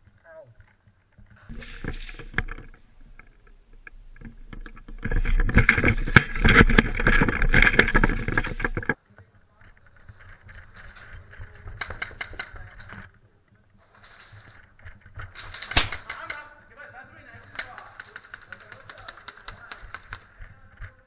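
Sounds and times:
airsoft guns firing rapidly: 17.2 - 20.8.

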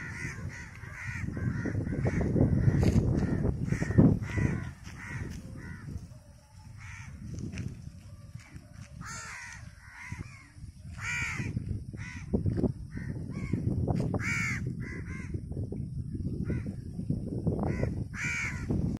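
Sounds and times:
crows cawing: 0.0 - 6.0, 6.8 - 7.3, 9.0 - 13.6, 14.2 - 15.4, 17.7 - 18.8.

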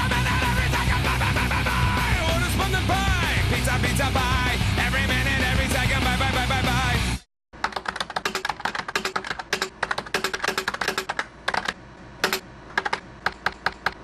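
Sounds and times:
keyboard typing: 7.6 - 14.0.

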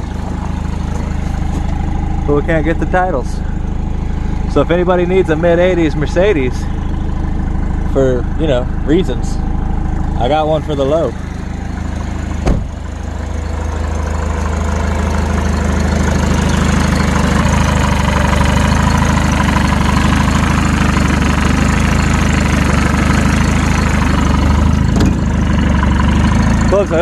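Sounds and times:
diesel engine idling: 0.0 - 27.0
sharp thump: 12.4 - 12.8, 24.9 - 25.3.

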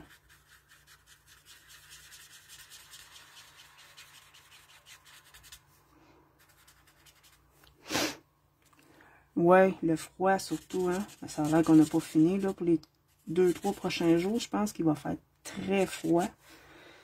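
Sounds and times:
marker scratching on cardstock: 0.0 - 5.6, 6.4 - 7.4, 10.4 - 14.5, 15.6 - 16.4.

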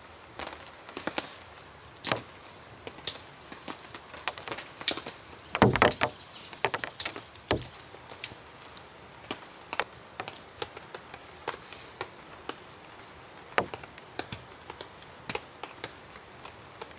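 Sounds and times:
faint hiss of rain: 0.0 - 16.9
tent poles and clips clicking: 2.0 - 12.6.

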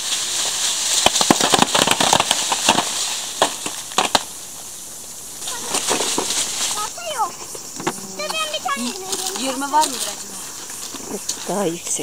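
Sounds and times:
fruit thudding onto a tarp: 0.0 - 4.3, 5.4 - 7.0
leaves rustling: 0.0 - 12.0.

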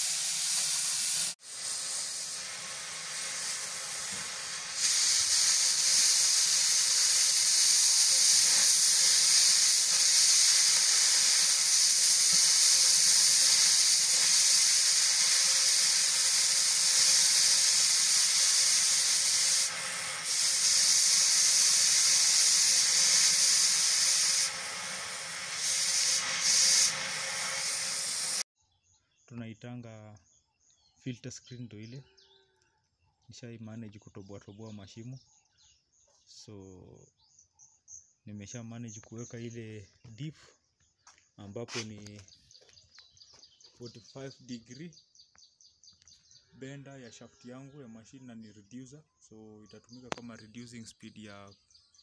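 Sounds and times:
gas cutting torch hissing: 0.0 - 28.5.

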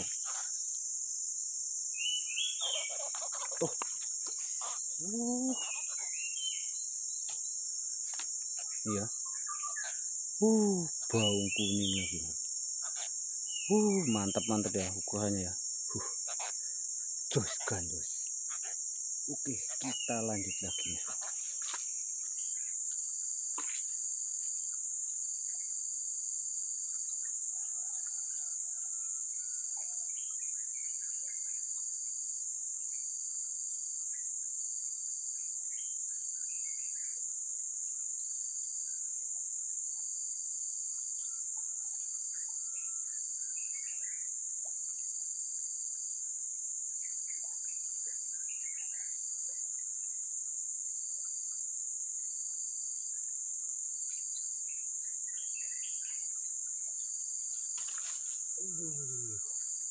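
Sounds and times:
insect pulsed trill: 0.0 - 59.9
insects droning: 0.0 - 59.9
bird chirps: 2.0 - 7.5, 8.6 - 12.3, 12.9 - 15.3.

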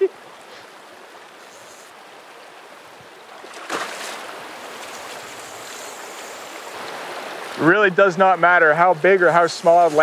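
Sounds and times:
water splash: 3.3 - 7.2.

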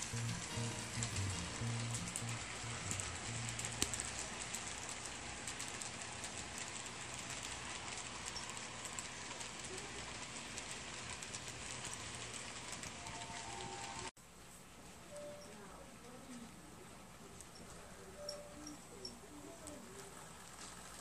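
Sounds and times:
metal wheels clicking on rails: 0.0 - 14.1
model train cars rolling: 0.0 - 14.1, 16.3 - 21.0.

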